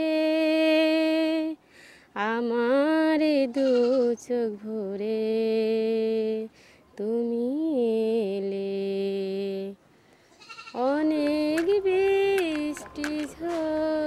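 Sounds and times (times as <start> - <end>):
woman singing unaccompanied: 0.0 - 9.8, 10.6 - 14.0
breaths: 1.6 - 2.2, 6.5 - 6.9, 9.8 - 10.4.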